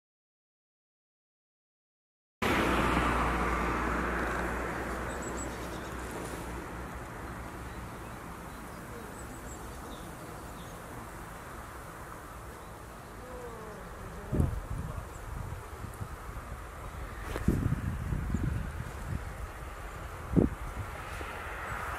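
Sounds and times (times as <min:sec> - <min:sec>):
wind noise: 0:14.2 - 0:21.9.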